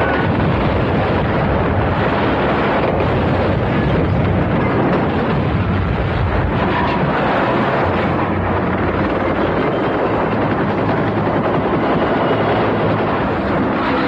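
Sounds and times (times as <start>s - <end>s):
rumble of explosions: 0.0s - 14.0s
vehicle noise: 0.0s - 14.0s.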